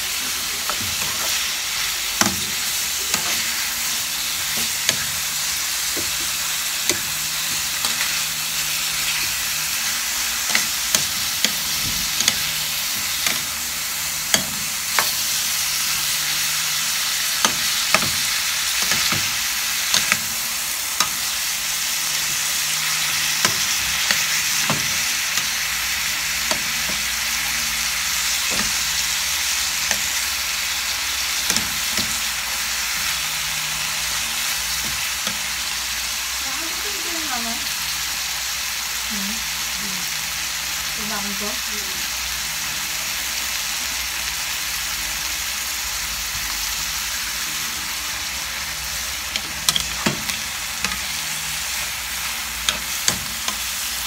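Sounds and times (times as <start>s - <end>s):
chicken sizzling in hot oil: 0.0s - 54.0s
spatula scraping a pan: 2.2s - 9.8s.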